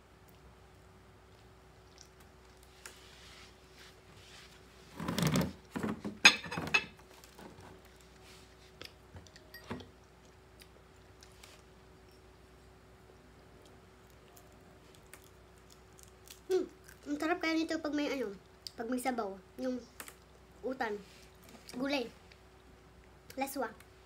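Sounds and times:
electric fan humming: 0.0 - 24.0
crunching fried fish: 14.1 - 17.1.

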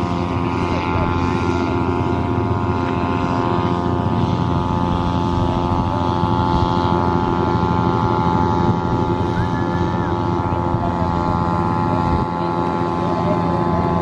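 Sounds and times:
kite hummers droning: 0.0 - 14.0
wind rumble on microphone: 0.0 - 14.0.

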